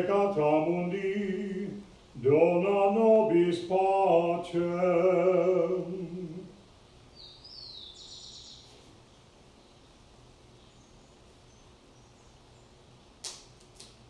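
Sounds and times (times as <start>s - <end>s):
sharp click: 13.2s - 14.0s.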